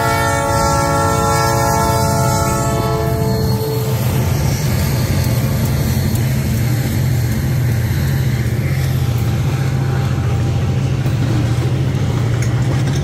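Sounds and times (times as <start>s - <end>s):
locomotive horn: 0.0s - 5.6s
diesel locomotive engines rumbling: 0.0s - 13.0s.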